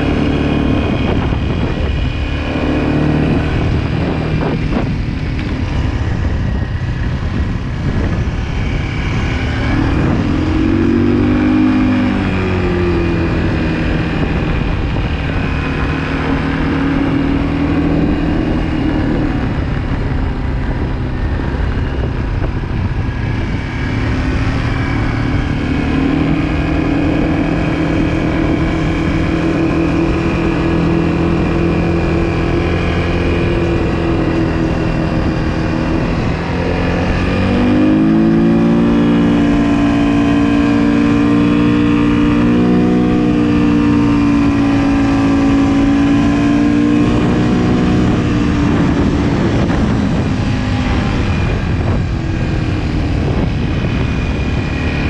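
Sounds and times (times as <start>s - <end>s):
quad bike engine revving: 0.0s - 55.0s.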